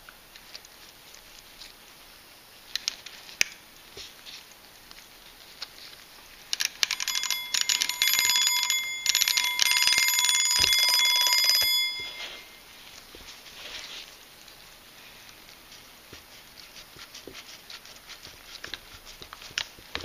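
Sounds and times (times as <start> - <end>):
alarm clock bell ringing: 6.8 - 12.6.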